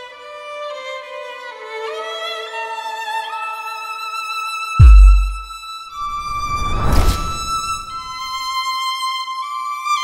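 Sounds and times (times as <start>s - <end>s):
violin playing slow melody: 0.0s - 4.8s, 8.1s - 10.0s.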